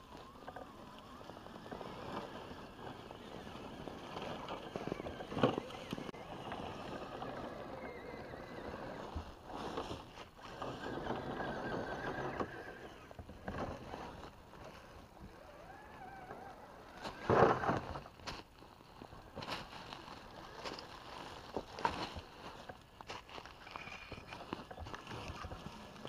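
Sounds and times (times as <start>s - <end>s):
toy truck motor whining: 0.0s - 9.2s, 10.4s - 14.2s, 15.2s - 17.9s.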